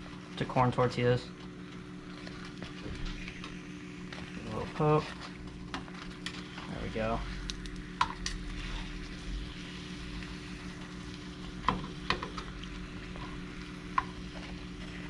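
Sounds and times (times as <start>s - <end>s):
tortilla sizzling in hot oil: 1.8s - 15.0s.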